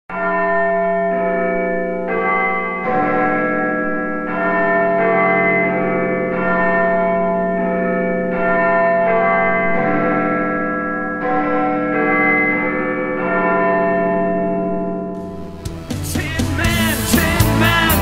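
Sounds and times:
bell-like synthesiser chords: 15.0 - 18.0
held low synth note: 15.2 - 18.0.

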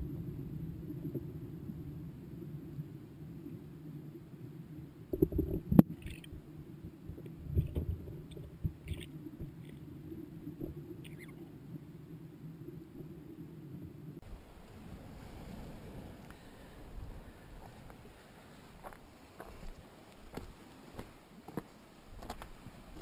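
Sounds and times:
low underwater rumble: 0.0 - 16.2.

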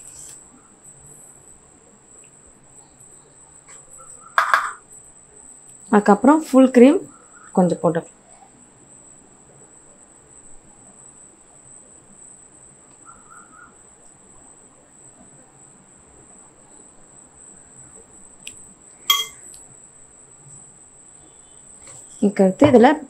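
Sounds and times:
spoon clinking glass bowl: 4.4 - 4.8, 19.1 - 19.4.

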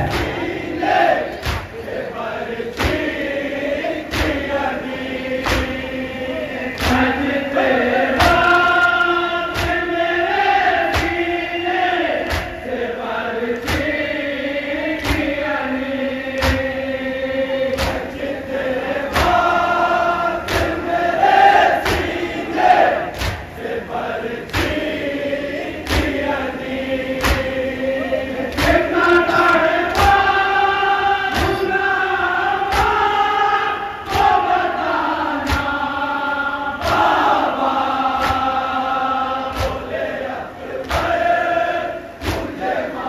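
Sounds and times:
chest-beating in steady beat: 0.0 - 1.9, 31.3 - 32.0
chorus chanting a lament: 0.0 - 43.0.

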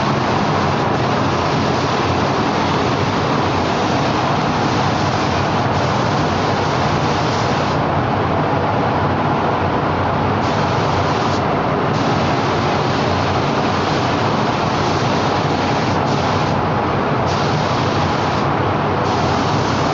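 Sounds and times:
paint spray gun hissing: 0.0 - 7.8, 10.4 - 11.4, 12.0 - 16.6, 17.3 - 18.5, 19.1 - 19.9
spray booth airflow rushing: 0.0 - 7.9, 10.4 - 19.9.

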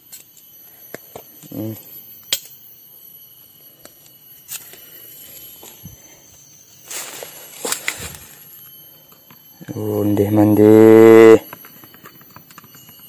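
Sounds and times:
steady high-pitched whine: 0.0 - 13.0.

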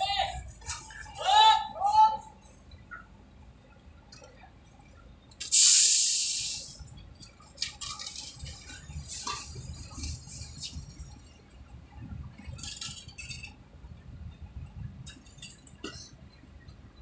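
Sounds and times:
low machinery rumble: 0.0 - 17.0
hiss of escaping air: 5.4 - 6.8
metal clinks and knocks: 12.4 - 13.6.

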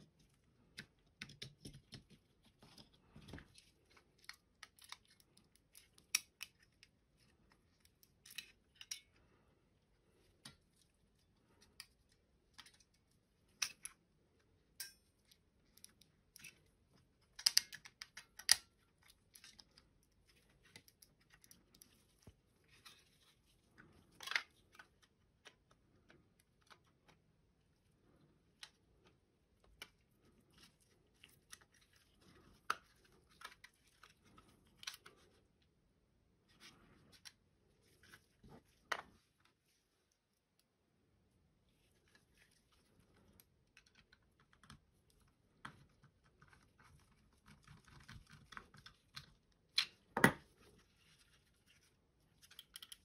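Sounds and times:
plastic parts clicking and tapping: 0.6 - 7.0, 14.8 - 22.4, 52.4 - 53.0.

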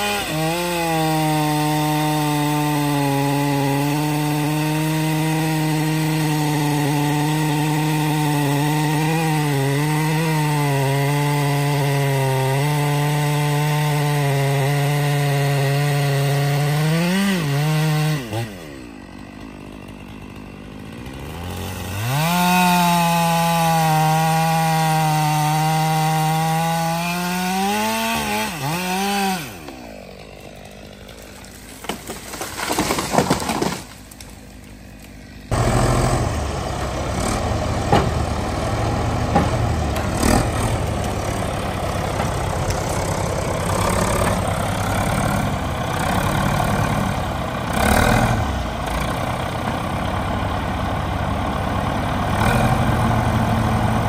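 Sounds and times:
chainsaw cutting tree trunk: 0.0 - 54.0
tree cracking and crashing: 0.0 - 54.0
diesel engine running: 29.4 - 54.0.

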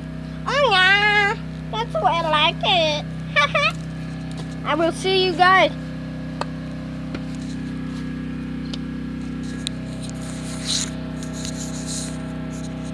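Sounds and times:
low mechanical hum: 0.0 - 12.9
fingers rustling on phone: 9.3 - 12.9.

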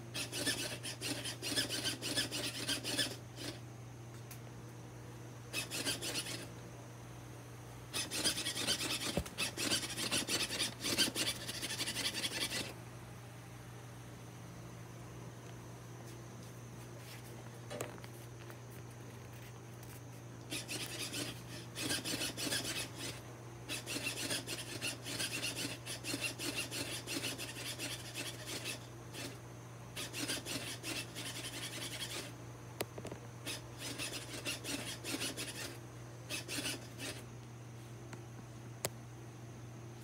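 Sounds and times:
rasping mechanical rubbing: 0.0 - 3.6, 5.5 - 6.5, 7.9 - 12.8, 20.5 - 29.4, 30.0 - 32.4, 33.4 - 37.2
steady low hum: 0.0 - 40.0.

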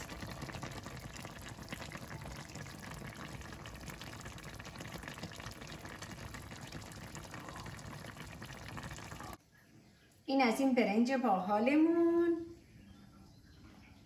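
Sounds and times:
stew bubbling in a pot: 0.0 - 9.7.

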